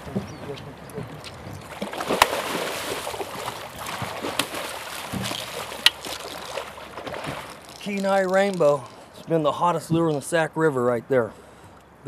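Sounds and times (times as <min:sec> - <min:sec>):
fish splashing and thrashing: 0:00.0 - 0:09.3.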